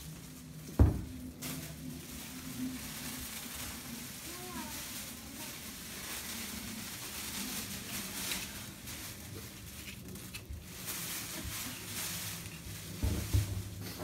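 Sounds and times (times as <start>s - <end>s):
low thuds: 0.7s - 1.3s.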